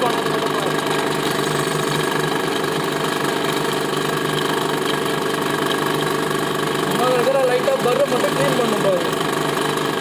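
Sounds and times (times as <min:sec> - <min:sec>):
drilling machine running: 0:00.0 - 0:10.0.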